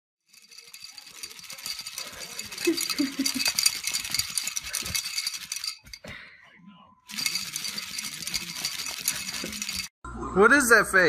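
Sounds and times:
rattling and clinking: 0:00.3 - 0:06.2, 0:07.1 - 0:09.9.

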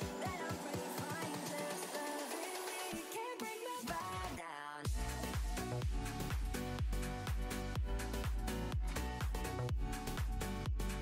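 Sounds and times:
low beat: 0:04.9 - 0:11.0.

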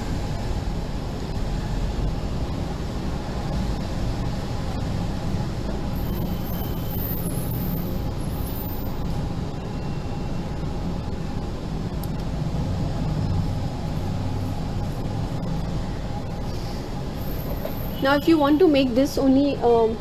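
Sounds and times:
faint constant hum: 0:00.0 - 0:20.0.

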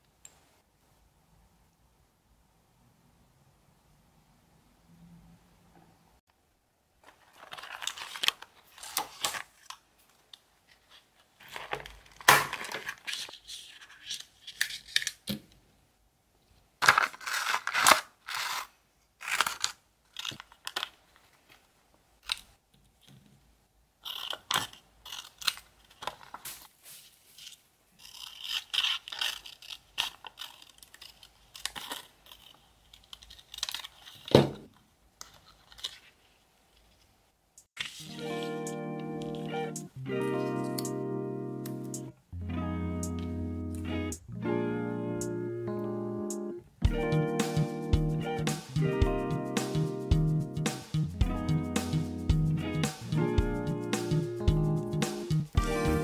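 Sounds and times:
magazine pages rustling: 0:07.0 - 0:15.3, 0:16.8 - 0:22.6, 0:24.6 - 0:37.1, 0:37.8 - 0:38.6
plastic sleeve crinkling: 0:07.0 - 0:15.3, 0:16.8 - 0:22.6, 0:24.1 - 0:37.0
scissors snipping paper: 0:16.9 - 0:20.9, 0:24.0 - 0:26.7, 0:27.4 - 0:34.4.

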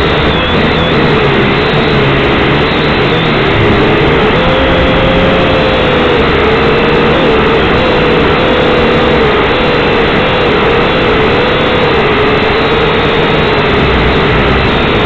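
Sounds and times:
drone propellers whirring: 0:00.0 - 0:15.0.

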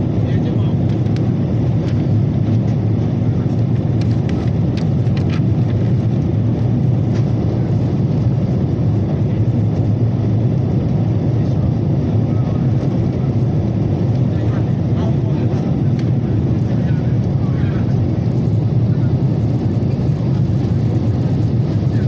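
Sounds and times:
airliner engine rumble: 0:00.0 - 0:22.0.

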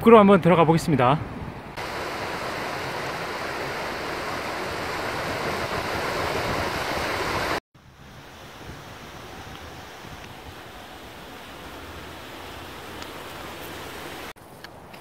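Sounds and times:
outdoor background noise: 0:00.0 - 0:15.0
stream rushing over rocks: 0:01.8 - 0:07.6, 0:08.3 - 0:14.4.

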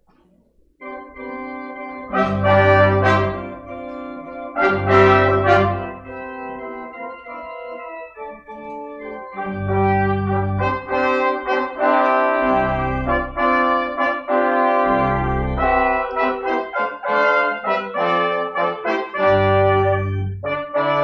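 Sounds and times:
slow brass-like chords: 0:00.8 - 0:21.0
deep bass notes: 0:00.9 - 0:07.3, 0:09.3 - 0:11.5, 0:12.4 - 0:13.9, 0:14.8 - 0:16.3, 0:19.4 - 0:20.8.

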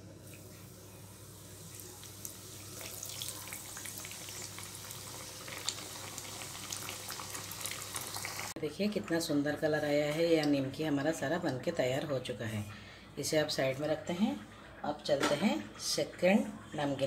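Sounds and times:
oil sizzling and bubbling: 0:00.0 - 0:08.6
oil crackles: 0:01.7 - 0:08.6.

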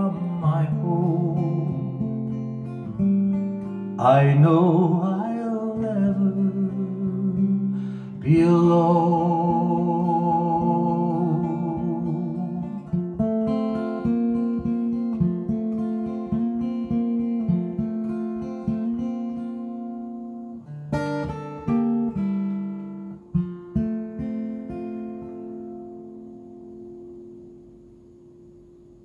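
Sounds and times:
acoustic guitar picking: 0:00.0 - 0:29.0.

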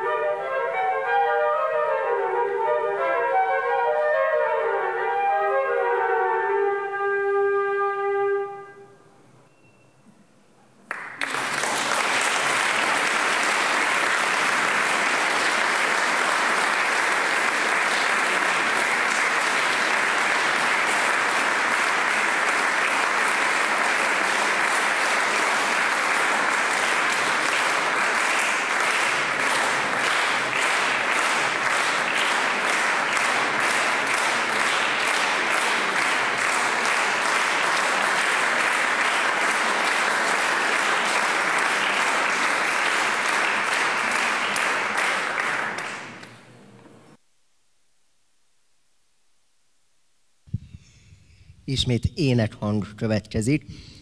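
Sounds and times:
audience applauding: 0:10.8 - 0:46.8.

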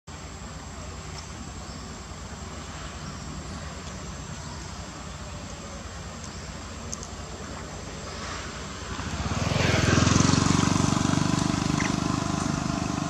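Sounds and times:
insects droning: 0:00.1 - 0:13.0.

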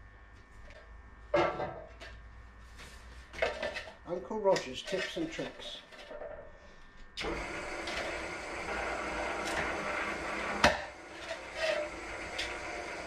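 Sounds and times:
drill cutting sheet metal: 0:07.2 - 0:13.0.

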